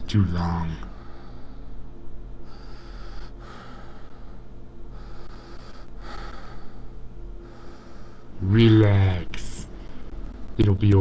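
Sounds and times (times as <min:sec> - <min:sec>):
low electrical hum: 0:00.0 - 0:11.0
slow breathing sound effect: 0:00.9 - 0:08.4.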